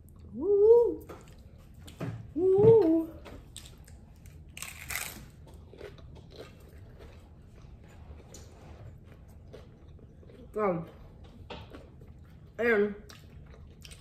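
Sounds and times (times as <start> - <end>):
soft chewing: 0.0 - 2.3, 2.9 - 14.0
person humming: 0.3 - 1.0
taco shell crunching: 3.5 - 7.8.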